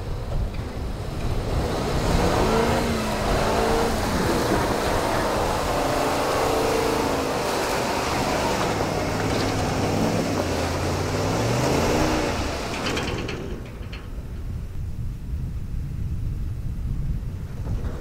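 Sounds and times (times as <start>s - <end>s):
truck engine revving: 0.0s - 14.2s.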